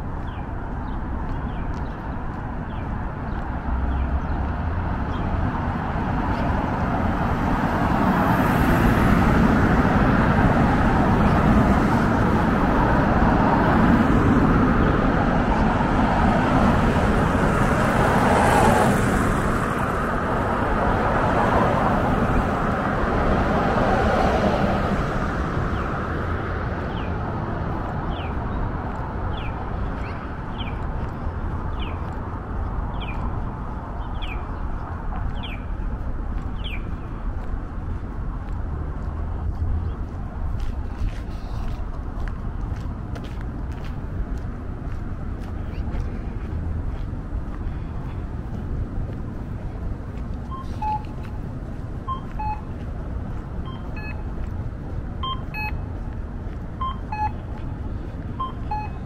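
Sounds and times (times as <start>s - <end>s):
street traffic passing: 0.0s - 59.0s.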